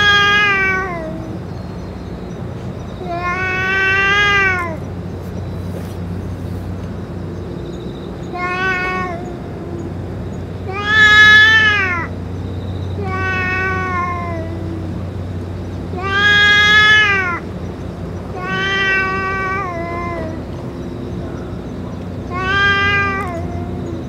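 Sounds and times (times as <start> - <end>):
cat yowling: 0.0 - 1.5, 3.0 - 4.9, 8.2 - 10.0, 10.6 - 12.2, 13.0 - 15.2, 15.9 - 17.5, 18.2 - 24.0.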